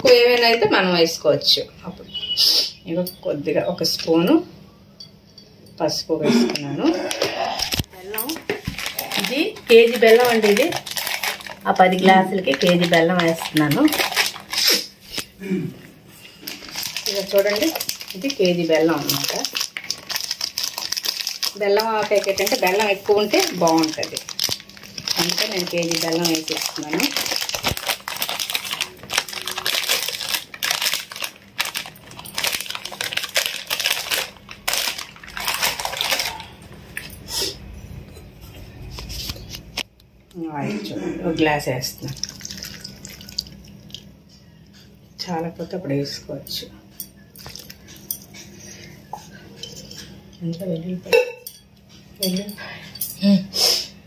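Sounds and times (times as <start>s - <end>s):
plastic packet crinkling: 7.7s - 15.3s, 16.4s - 36.6s, 42.0s - 44.1s, 47.4s - 48.1s.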